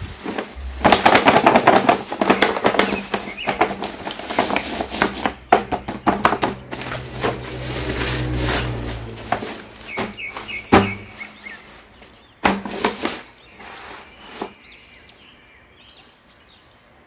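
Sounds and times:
steady low hum: 0:00.0 - 0:01.4
plastic mailer crinkling: 0:00.0 - 0:13.4.

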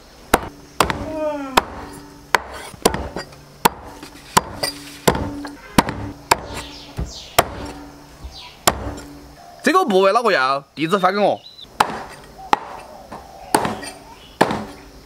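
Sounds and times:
cleaver chopping on wooden block: 0:00.3 - 0:09.2, 0:11.8 - 0:14.8.

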